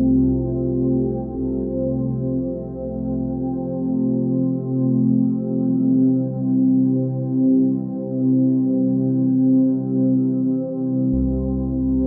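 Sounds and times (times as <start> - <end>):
slow ambient music: 0.0 - 12.0.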